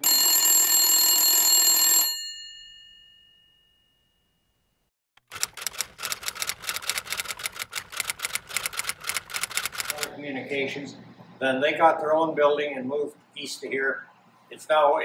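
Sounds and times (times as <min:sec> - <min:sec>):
bell ringing: 0:00.0 - 0:04.6
typewriter typing: 0:05.2 - 0:10.1.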